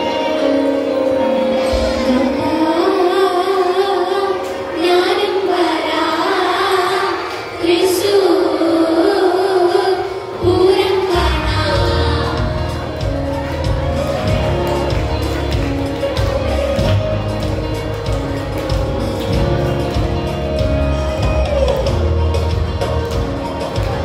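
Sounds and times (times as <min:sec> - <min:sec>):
students singing into microphones: 0:01.7 - 0:14.6.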